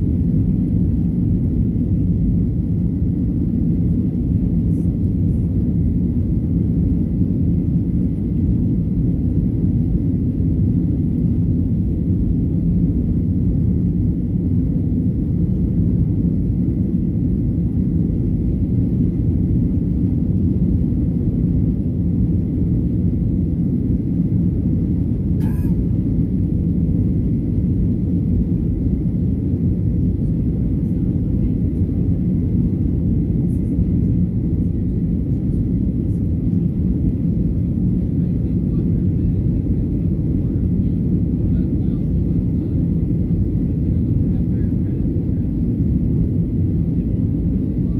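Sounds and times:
jet engines rumbling in cabin: 0:00.0 - 0:47.9.

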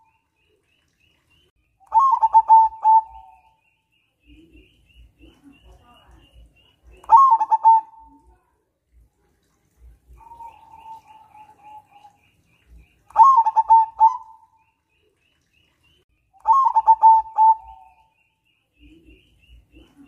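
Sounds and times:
dove cooing: 0:01.9 - 0:03.5, 0:06.9 - 0:08.2, 0:10.1 - 0:12.2, 0:13.1 - 0:14.6, 0:16.4 - 0:18.1.

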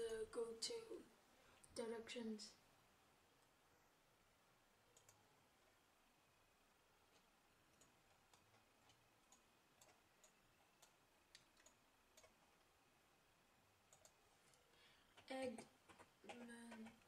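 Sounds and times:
faint computer clicks: 0:04.9 - 0:05.2, 0:13.9 - 0:17.0.

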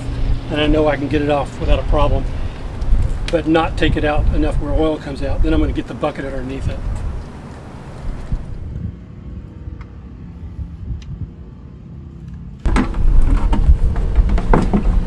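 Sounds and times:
low outdoor rumble: 0:00.0 - 0:15.0
plastic bucket knocking: 0:12.7 - 0:15.0.

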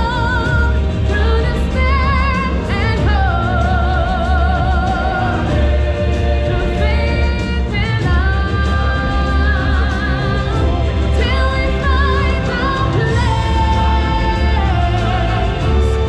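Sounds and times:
stage show music with singers: 0:00.0 - 0:16.0.

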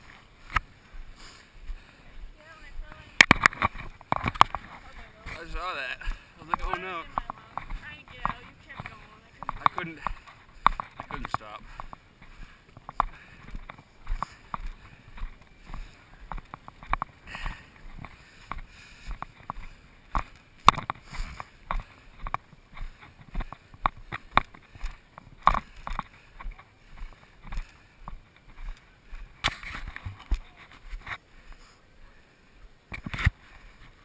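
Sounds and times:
hard breathing: 0:00.4 - 0:02.5, 0:05.9 - 0:06.5, 0:09.8 - 0:29.4, 0:31.0 - 0:32.8
footfalls on gravel trail: 0:02.5 - 0:31.2.

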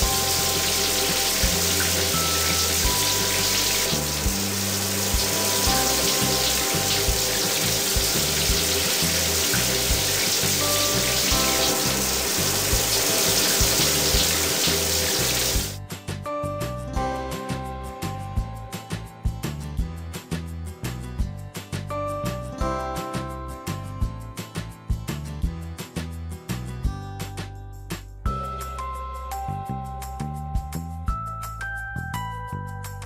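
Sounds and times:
rushing spraying water: 0:00.0 - 0:15.8
children's music with pulsing bass: 0:00.0 - 0:33.0.

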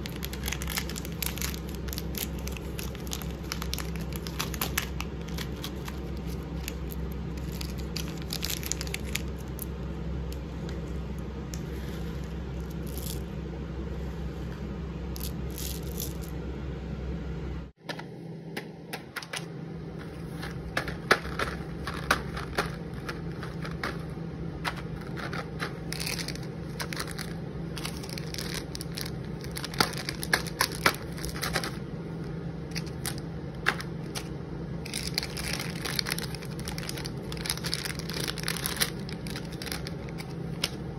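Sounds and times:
plastic wrappers crinkling: 0:00.0 - 0:09.8, 0:20.1 - 0:31.8, 0:32.6 - 0:40.9
steady low hum: 0:00.0 - 0:40.9.

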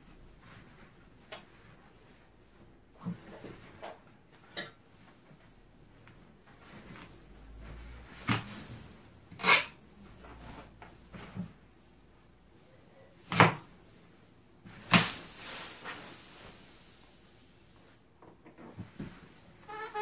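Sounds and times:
balloon rubbing squeaks: 0:19.6 - 0:20.0.

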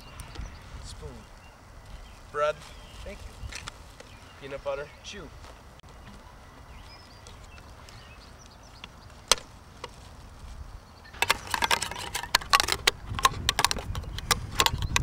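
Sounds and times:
spoon scraping a tin can lid: 0:11.2 - 0:12.9.

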